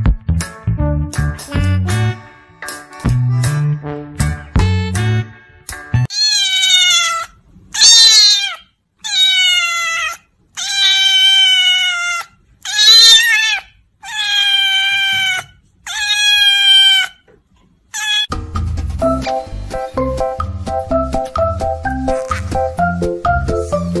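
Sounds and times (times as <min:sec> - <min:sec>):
cat meowing loudly: 0:06.1 - 0:17.2, 0:17.9 - 0:18.3.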